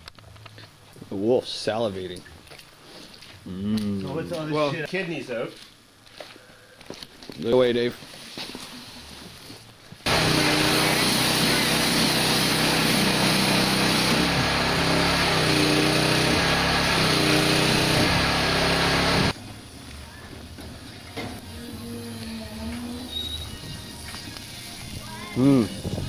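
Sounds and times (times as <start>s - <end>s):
small engine running: 10.1s - 19.4s.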